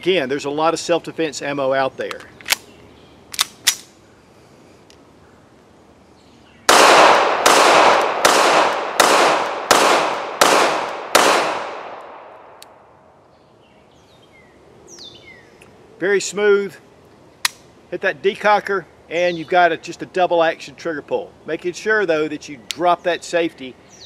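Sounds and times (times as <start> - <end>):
pistol handling clicks: 2.0 - 2.7, 3.3 - 4.0, 6.8 - 12.8, 17.4 - 17.6
gunshot echo: 6.7 - 12.6
pistol shots: 6.7 - 12.6.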